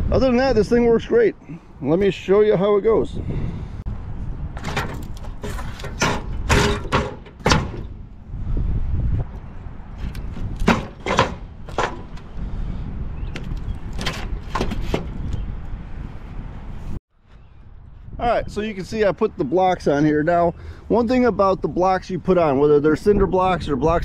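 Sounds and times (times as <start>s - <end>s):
heavy blocks clunking on metal tray: 4.6s - 7.8s.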